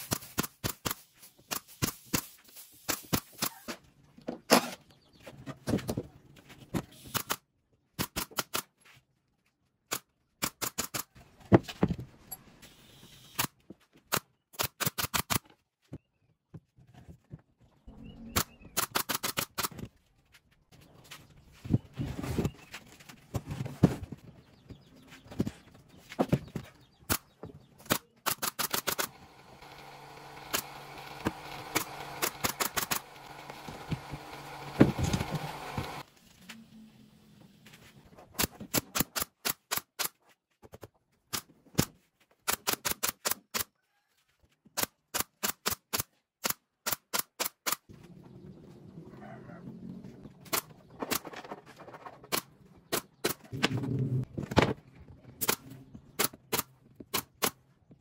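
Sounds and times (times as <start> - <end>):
nail gun firing: 18.4 - 19.8, 27.8 - 36.0.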